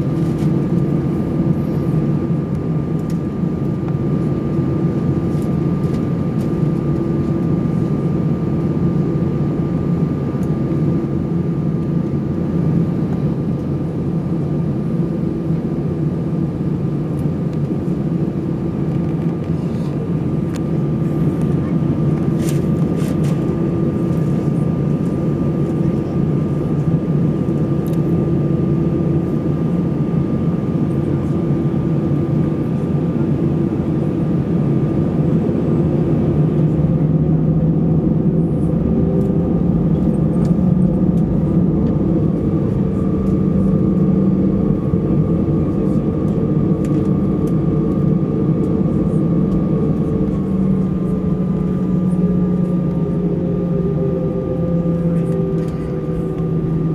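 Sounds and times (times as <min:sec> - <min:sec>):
jet engine drone: 0:00.0 - 0:56.9
low hum: 0:17.6 - 0:56.9.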